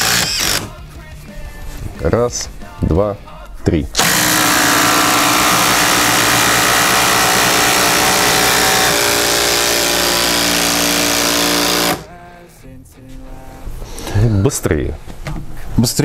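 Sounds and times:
impact drivers hammering screws: 0:00.0 - 0:00.7, 0:04.0 - 0:12.1.

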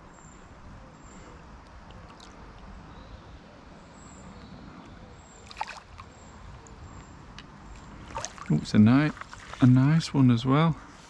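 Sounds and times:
river flowing: 0:05.4 - 0:06.8, 0:07.9 - 0:09.7.

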